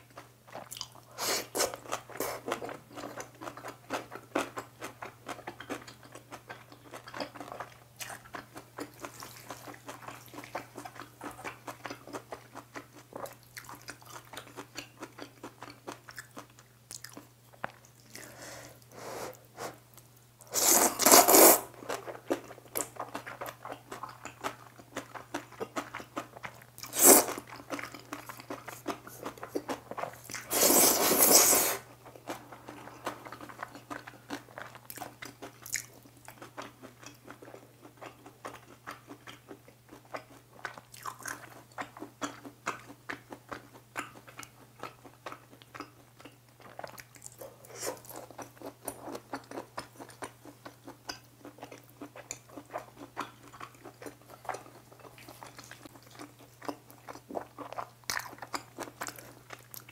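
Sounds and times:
wet chewing with mouth clicks: 0.0 - 59.9
noodles slurped loudly: 20.5 - 21.7, 26.9 - 27.4, 30.3 - 31.9.

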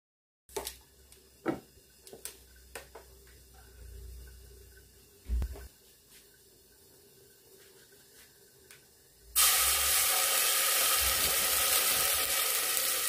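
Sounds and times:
faint steady hum: 0.8 - 12.8
heavy thump: 5.3 - 5.7.

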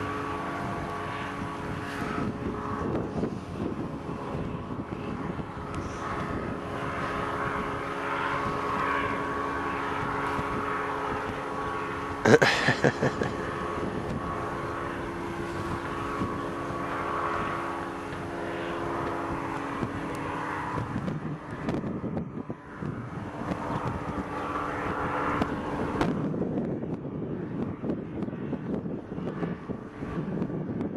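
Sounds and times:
engine and propeller droning: 0.0 - 30.9.

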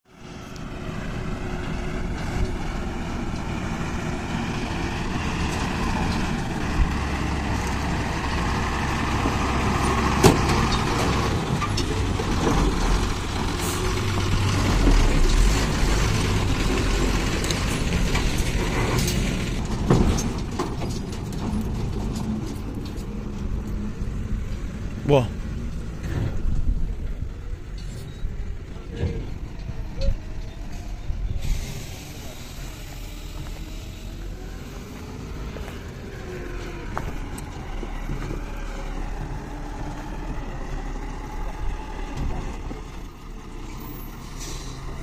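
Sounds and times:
diesel truck engine running: 0.1 - 45.0
truck body knocking over bumps: 9.0 - 23.4.

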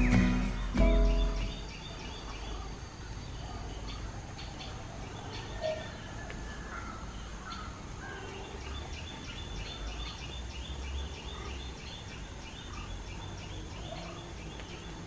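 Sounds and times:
hornbill calling high notes: 0.0 - 1.7.

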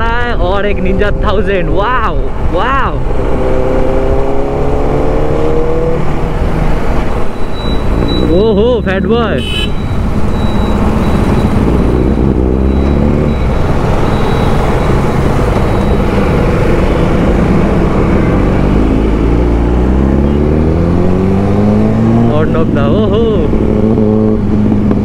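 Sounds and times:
wind and road noise: 0.0 - 25.0
motorcycle engine accelerating: 3.0 - 25.0.

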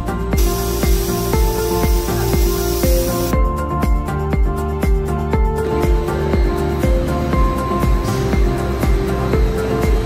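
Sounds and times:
background music with steady beat: 0.0 - 10.0
even hiss: 0.4 - 3.4.

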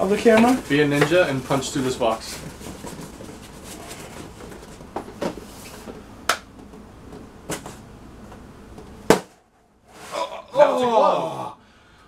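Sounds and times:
low room hum: 0.0 - 12.0
sharp hit on cardboard box: 9.1 - 9.4.

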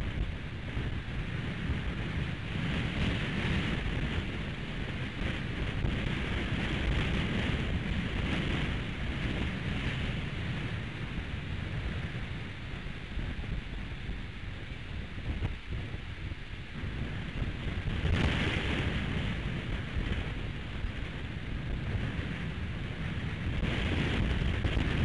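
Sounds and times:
gusty wind on microphone: 0.0 - 25.0.

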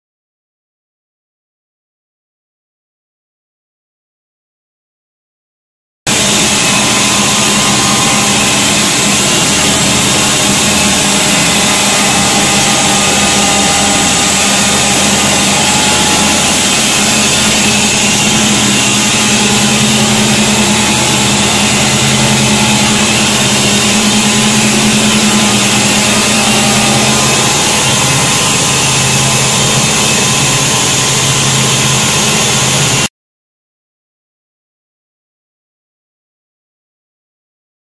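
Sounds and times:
centrifuge machine humming: 6.1 - 33.1.

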